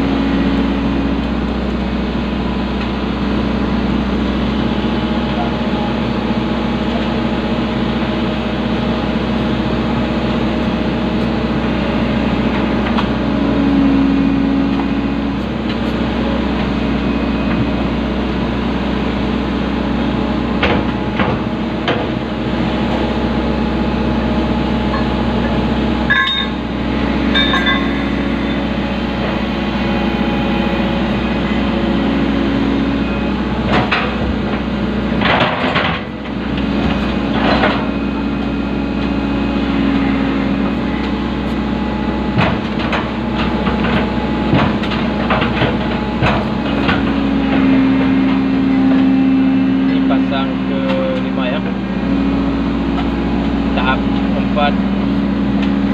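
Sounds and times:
diesel engine running: 0.0s - 55.9s
knocks and clanks: 27.3s - 28.6s, 35.2s - 36.1s, 42.3s - 48.4s.

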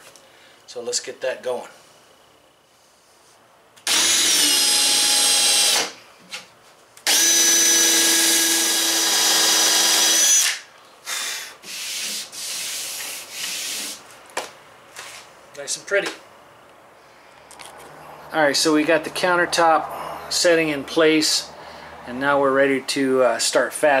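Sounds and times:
cordless drill boring into plywood: 3.8s - 6.0s, 7.0s - 10.6s.

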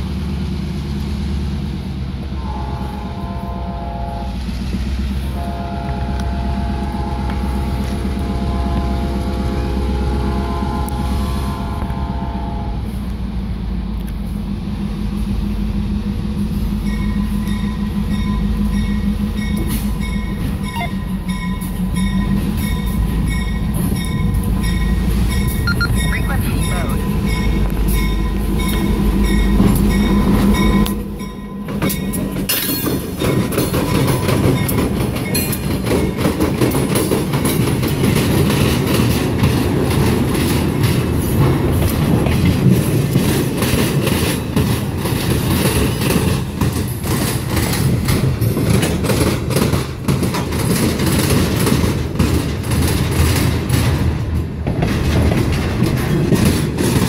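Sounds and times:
diesel locomotive engine running: 0.0s - 57.0s
train wheels clattering over rail joints: 27.0s - 57.0s.

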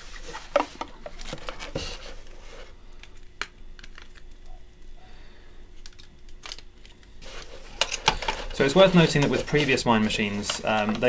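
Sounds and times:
cloth rustling: 7.2s - 11.0s.

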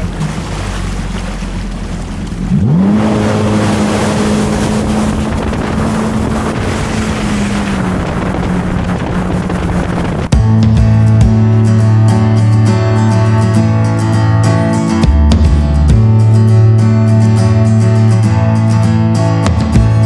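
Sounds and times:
jet ski engine revving: 0.0s - 10.5s
rushing water: 0.0s - 11.2s
wind noise: 2.4s - 11.9s.

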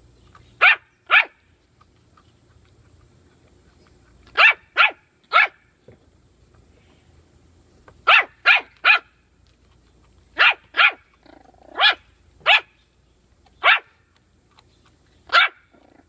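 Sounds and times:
puppy barking high-pitched: 0.6s - 1.5s, 4.3s - 5.7s, 8.0s - 9.2s, 10.4s - 12.8s, 13.6s - 14.0s, 15.3s - 15.8s.

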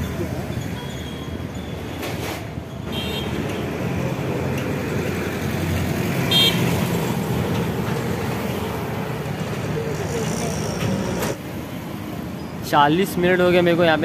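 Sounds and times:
road traffic passing: 0.0s - 14.0s
vehicle horn toots: 2.9s - 3.4s, 6.3s - 6.7s.

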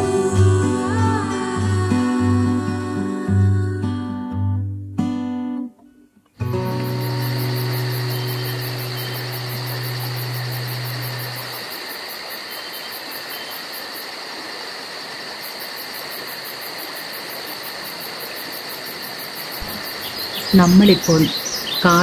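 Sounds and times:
continuous high insect buzz: 6.4s - 22.0s
insects trilling: 6.4s - 22.0s.

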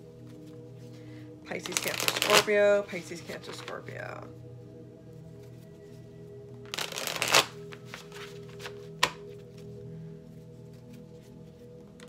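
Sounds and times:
soft background music: 0.0s - 12.0s
cards shuffling: 1.5s - 2.6s, 6.7s - 9.7s.

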